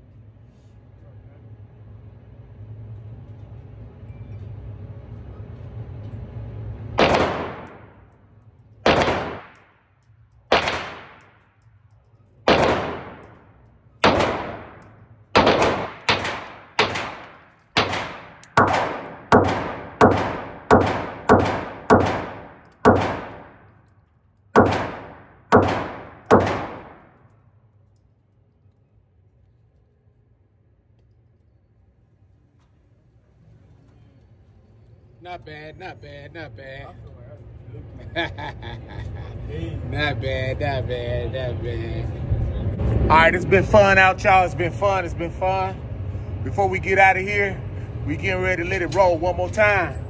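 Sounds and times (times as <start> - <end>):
gunshots echoing: 7.0 - 8.0, 8.8 - 9.7, 10.5 - 11.5, 12.4 - 23.7, 24.6 - 27.2.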